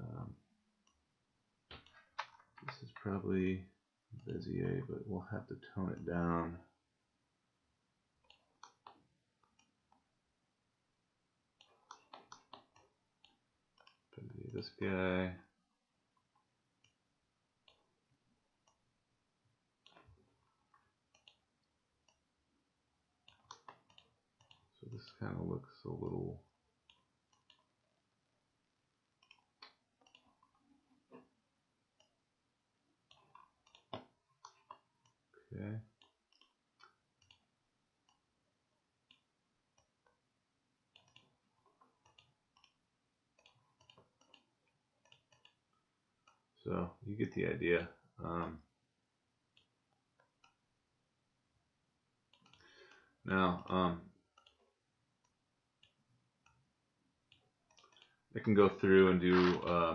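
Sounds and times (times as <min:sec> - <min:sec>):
computer mouse clicks: 0:21.1 - 0:21.4, 0:29.2 - 0:30.6, 0:33.1 - 0:35.2, 0:36.0 - 0:38.2, 0:40.9 - 0:42.8, 0:43.4 - 0:45.6, 0:52.3 - 0:53.1, 0:54.3 - 0:54.6.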